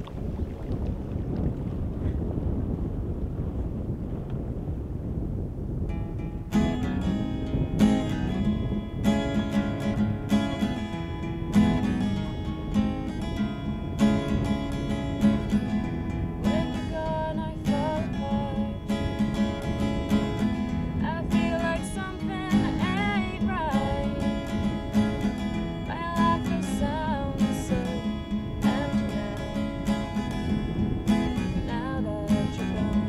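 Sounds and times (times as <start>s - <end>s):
acoustic guitar strumming: 5.9s - 33.0s
woman singing: 16.5s - 19.1s, 21.0s - 24.9s, 25.8s - 30.1s, 31.4s - 33.0s.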